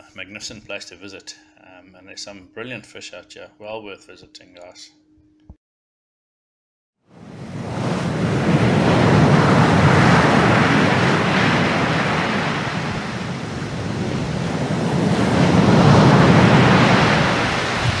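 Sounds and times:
waves washing in: 0:07.1 - 0:18.0.

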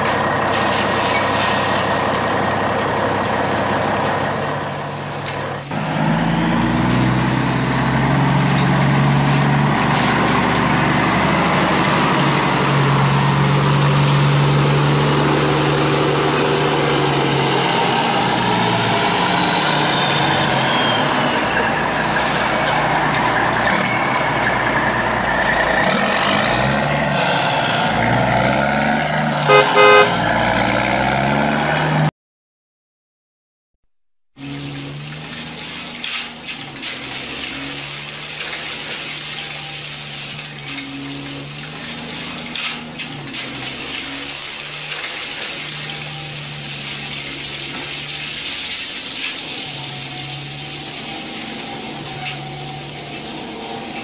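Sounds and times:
heavy truck engine running: 0:00.0 - 0:32.1, 0:34.4 - 0:54.0
truck horn toots: 0:26.2 - 0:31.5.

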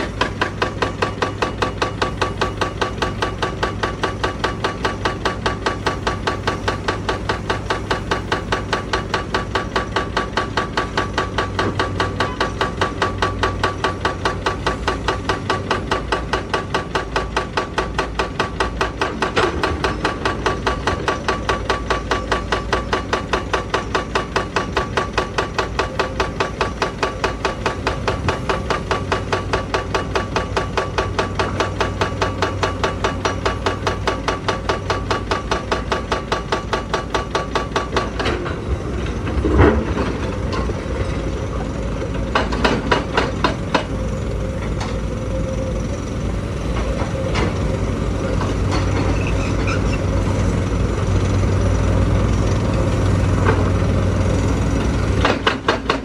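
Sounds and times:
hydraulic breaker hammering rock: 0:00.0 - 0:45.5, 0:46.6 - 0:56.0
clanks of rock and steel: 0:28.1 - 0:41.2
diesel engine running: 0:37.6 - 0:56.0.

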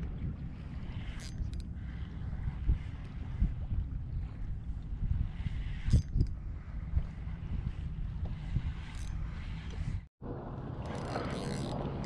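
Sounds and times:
wind buffeting microphone: 0:00.0 - 0:12.0
water slapping against kayak: 0:09.8 - 0:12.0.

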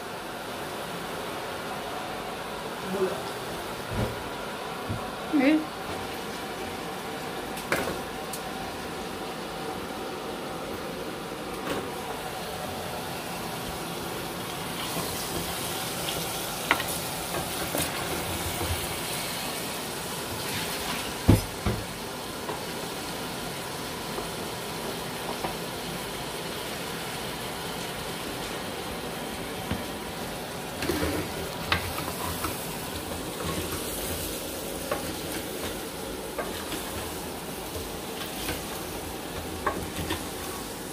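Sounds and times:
curry sizzling in a pot: 0:12.0 - 0:40.9.

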